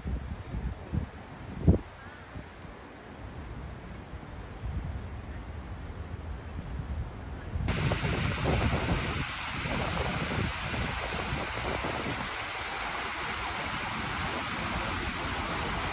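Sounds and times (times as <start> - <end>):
fountain jets splashing into pool: 7.7 - 15.9.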